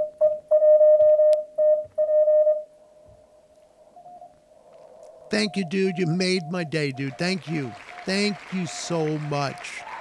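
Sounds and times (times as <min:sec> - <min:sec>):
morse code tone: 0:00.0 - 0:02.7, 0:05.4 - 0:07.4.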